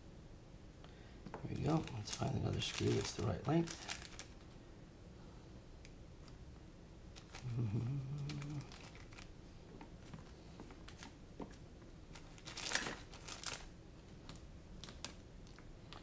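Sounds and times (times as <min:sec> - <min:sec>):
plastic bags crinkling: 0:01.4 - 0:04.4, 0:07.2 - 0:16.0.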